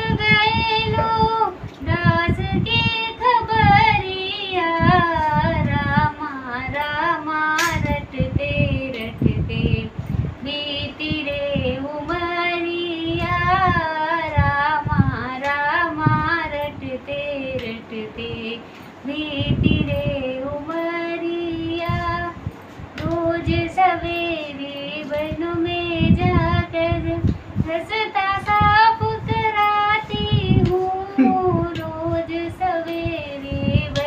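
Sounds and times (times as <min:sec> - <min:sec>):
woman singing devotional song: 0:00.0 - 0:34.0
sharp click: 0:07.6 - 0:08.0.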